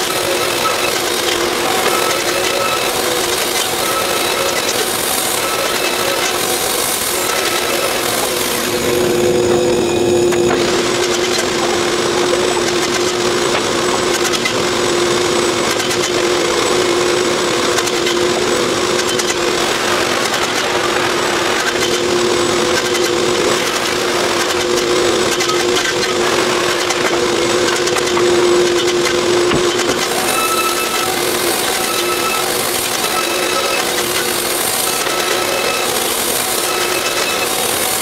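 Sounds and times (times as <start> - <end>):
steady machine hum: 0.0 - 38.0
wooden boards clattering: 26.8 - 30.2.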